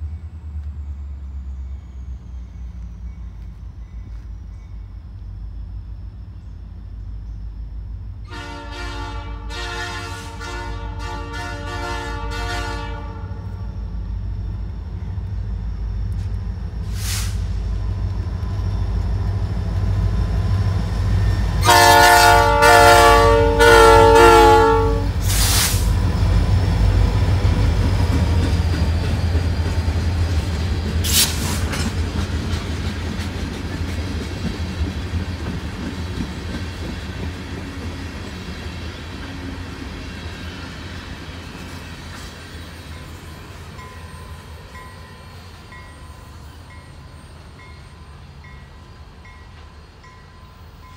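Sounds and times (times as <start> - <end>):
low rumble of train: 0.0 - 50.9
locomotive air horn blasts: 8.3 - 13.6, 21.6 - 25.4.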